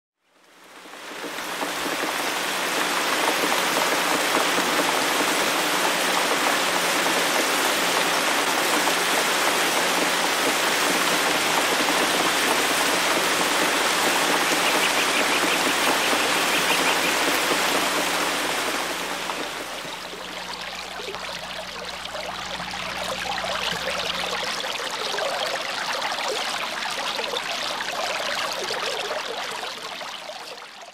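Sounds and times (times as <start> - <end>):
water fountain splashing: 0.4 - 30.9
water trickling and pattering: 0.5 - 30.9.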